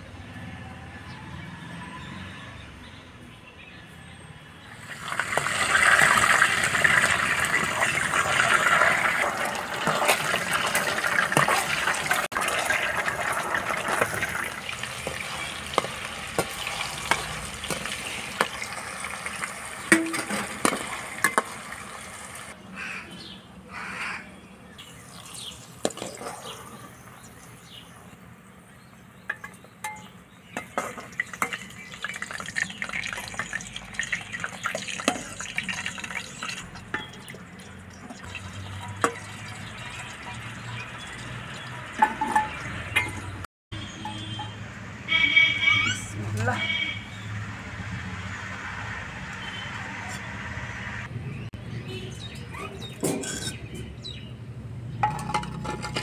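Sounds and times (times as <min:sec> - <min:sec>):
dough sizzling in hot oil: 0:04.8 - 0:22.5, 0:31.0 - 0:37.4.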